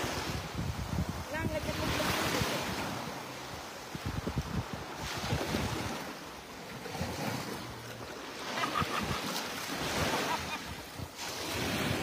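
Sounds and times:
wind buffeting microphone: 0.0s - 3.0s, 3.6s - 6.1s
small waves washing on sand: 0.0s - 12.0s.

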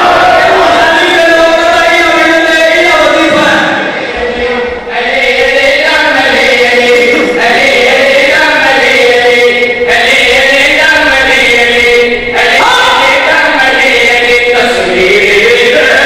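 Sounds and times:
melodic chanting: 0.0s - 16.0s.

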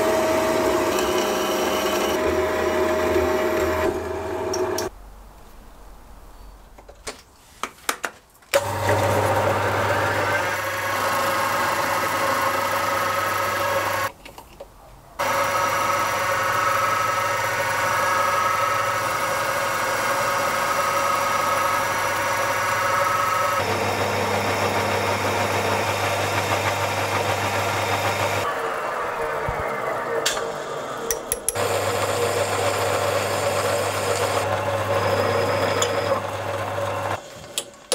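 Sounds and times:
lathe whining tones: 0.0s - 4.9s, 15.2s - 37.2s
metal lathe motor humming: 0.0s - 4.9s, 8.6s - 14.1s, 15.2s - 37.2s.

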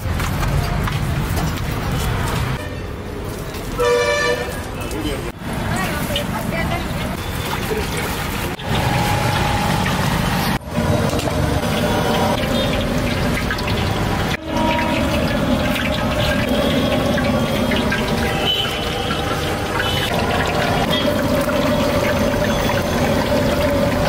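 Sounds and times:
hot oil sizzling in frying pan: 5.5s - 24.0s.

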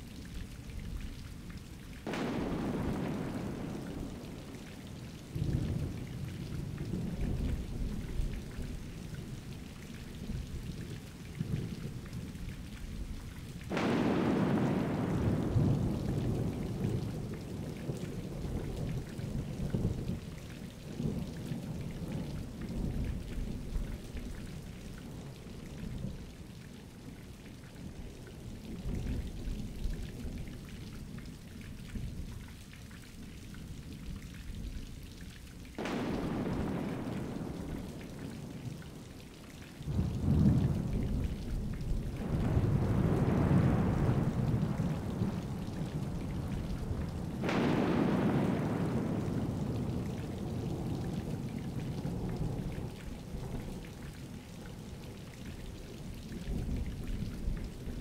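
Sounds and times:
steady rain: 0.0s - 58.0s
loud thunderclap: 2.0s - 4.4s, 13.7s - 17.2s, 35.8s - 38.6s, 39.9s - 45.4s, 46.1s - 51.4s
thunder rumbling: 2.0s - 8.9s, 13.7s - 20.4s, 35.8s - 54.4s.

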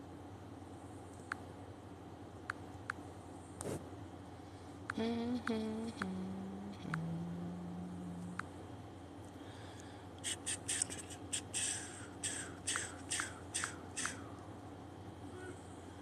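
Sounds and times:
short sharp clicks: 10.2s - 14.2s.

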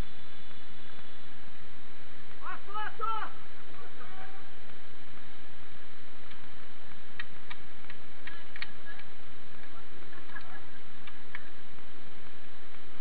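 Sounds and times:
steady hiss: 0.0s - 13.0s
sharp light clicks: 6.2s - 12.9s.

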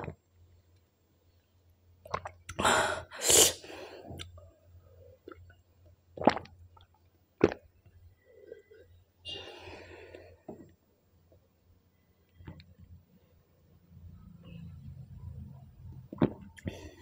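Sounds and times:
person gulping a drink: 2.0s - 2.7s, 6.2s - 7.9s, 16.1s - 16.9s.

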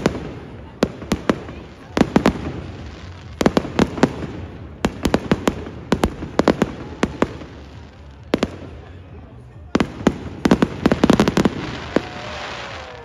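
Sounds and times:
fireworks bangs: 0.0s - 13.0s.

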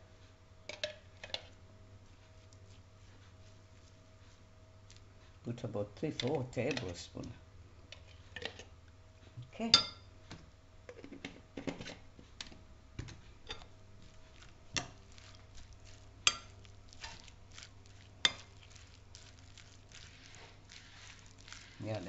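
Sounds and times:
shredded vegetables rustling: 13.7s - 22.0s.

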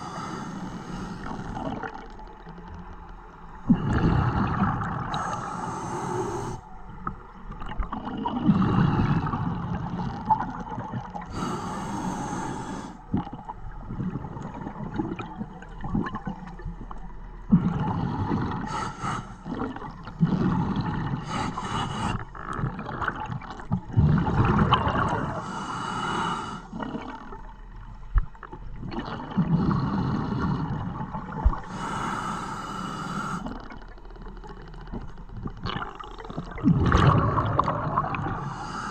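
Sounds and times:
diver breathing through regulator: 0.0s - 1.8s, 3.7s - 6.8s, 11.3s - 13.1s, 17.7s - 22.4s, 25.1s - 27.0s, 29.4s - 30.9s, 31.6s - 33.7s, 38.2s - 38.9s
exhaled bubbles rushing: 3.7s - 5.4s, 7.5s - 11.3s, 13.1s - 18.6s, 22.5s - 25.4s, 35.0s - 38.6s.

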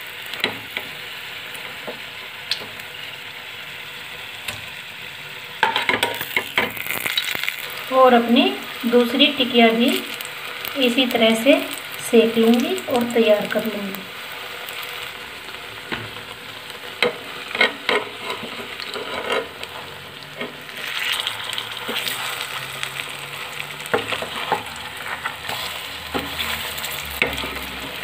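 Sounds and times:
patties sizzling in pan: 0.0s - 28.0s
metal spatula scraping pan: 17.0s - 20.8s.

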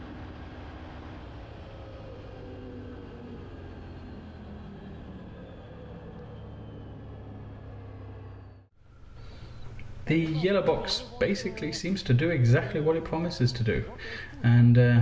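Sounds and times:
atv engine slowing down: 0.0s - 10.8s
road noise: 0.0s - 14.8s.

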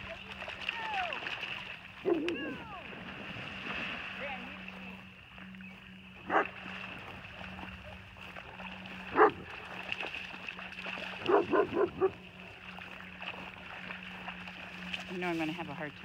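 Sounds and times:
dog barking: 2.0s - 2.6s, 6.3s - 6.5s, 9.1s - 9.5s, 11.2s - 12.2s.

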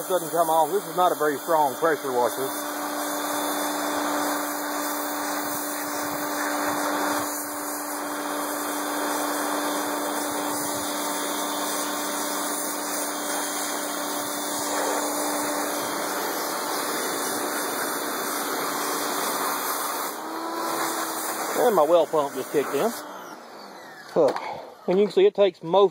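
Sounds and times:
water jet hissing on metal: 0.0s - 2.6s, 9.3s - 23.0s
pressure washer running: 0.0s - 25.0s.

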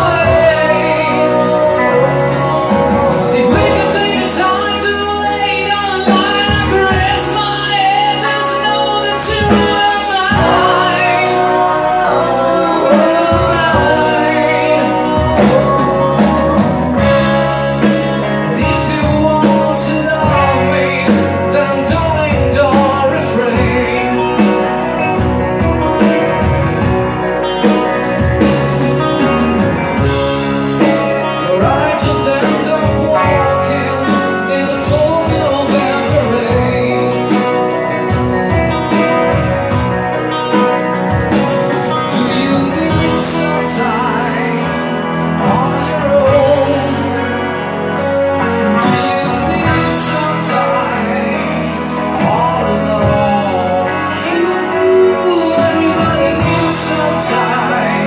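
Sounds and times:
woman singing: 0.0s - 17.4s, 18.5s - 24.6s, 31.4s - 37.7s, 42.0s - 47.4s
bass guitar: 0.0s - 58.0s
drum kit: 0.0s - 58.0s
electric guitars: 0.0s - 58.0s.

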